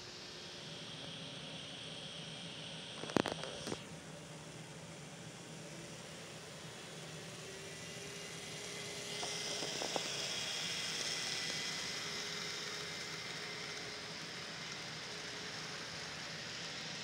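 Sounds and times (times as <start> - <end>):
model train motors whirring: 0.0 - 17.0
wheels rolling on rail: 6.0 - 17.0
wheels clicking over track joints: 9.1 - 10.3.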